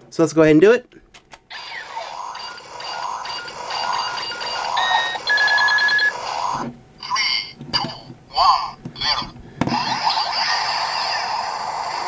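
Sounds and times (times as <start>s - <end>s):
electronic beeps: 1.5s - 10.6s
toy electronic powering-up sound: 1.5s - 12.0s.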